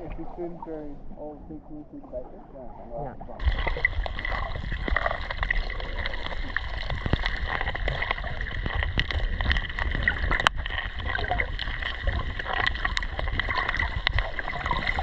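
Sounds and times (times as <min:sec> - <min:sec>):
muffled underwater rumble: 0:00.0 - 0:15.0
crackle of small clicks: 0:03.4 - 0:15.0.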